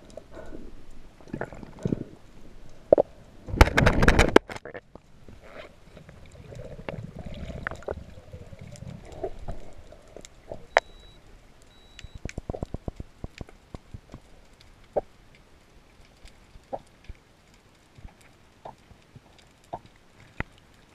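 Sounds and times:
muffled underwater rumble: 0.0 - 15.8
sharp clicks and knocks: 2.9 - 4.8.

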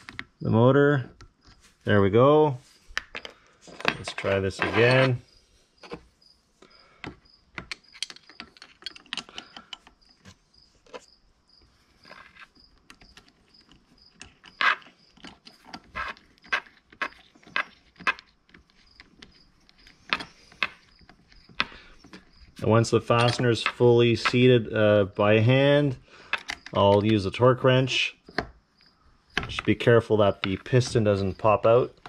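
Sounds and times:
metal parts clicking and tapping: 2.9 - 5.2, 7.0 - 11.1, 12.0 - 24.6, 26.2 - 27.4, 29.3 - 32.0.

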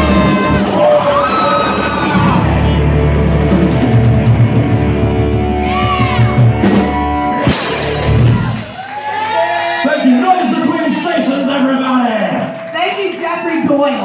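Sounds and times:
live rock band playing: 0.0 - 8.9.

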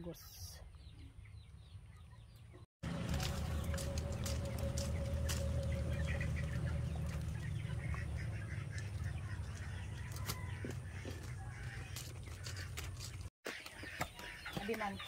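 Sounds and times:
chickens clucking: 0.0 - 15.0
steady low rumble: 2.8 - 10.1.

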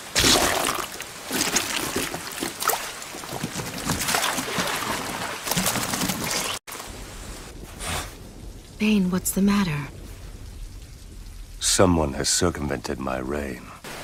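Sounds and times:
water splashing: 0.0 - 6.9
rain falling: 0.0 - 14.0.

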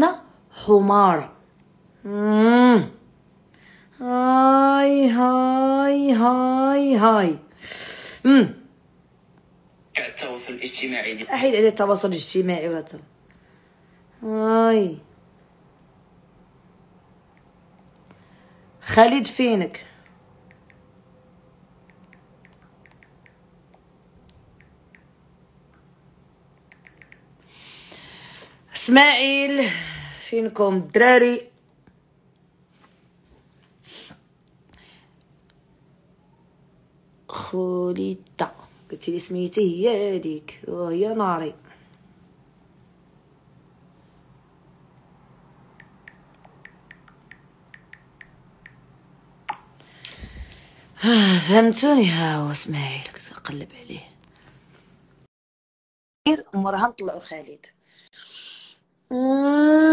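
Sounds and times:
low room hum: 0.0 - 55.3, 56.3 - 59.9
smartphone typing taps: 21.9 - 23.4, 26.7 - 27.3, 45.8 - 48.8.

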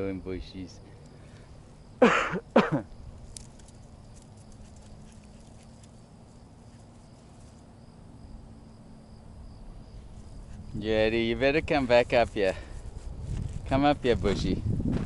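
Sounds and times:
faint high hum: 0.0 - 14.8
footsteps on dry dirt: 11.5 - 15.0.

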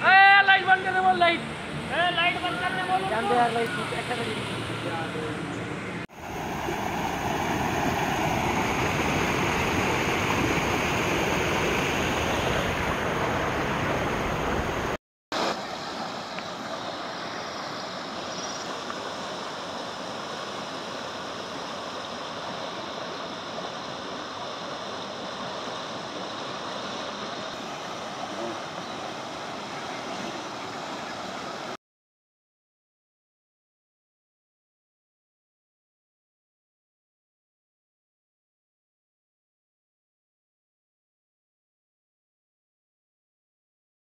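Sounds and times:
stream rushing through culvert: 0.4 - 31.8
floodwater rushing over concrete: 6.1 - 31.8.

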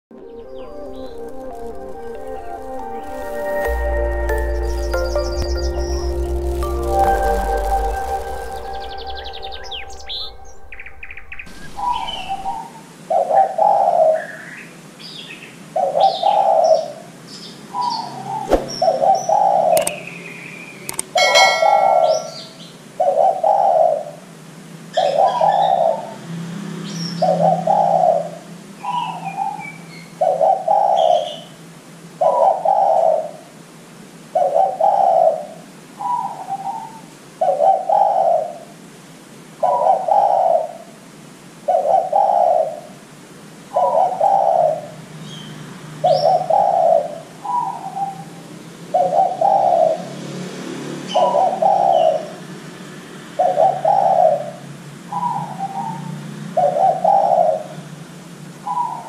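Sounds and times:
small birds chirping: 0.2 - 23.8
dove cooing: 21.2 - 24.2, 30.2 - 31.4, 32.2 - 33.5, 34.4 - 38.7, 39.6 - 40.9, 41.7 - 43.0, 43.8 - 45.0, 49.0 - 50.0, 51.2 - 52.4, 53.4 - 57.8.

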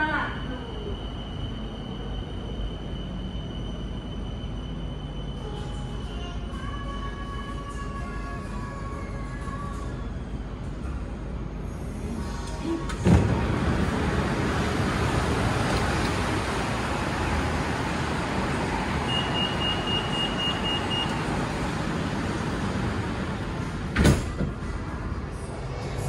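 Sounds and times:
train rushing: 11.4 - 26.0
high electronic beep: 19.1 - 21.2.

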